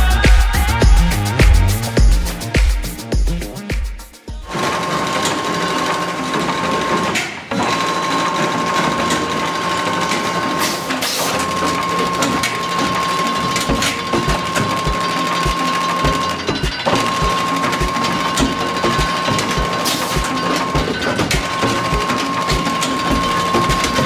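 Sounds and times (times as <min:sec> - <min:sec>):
machine clatter and whirring: 0:04.4 - 0:24.0.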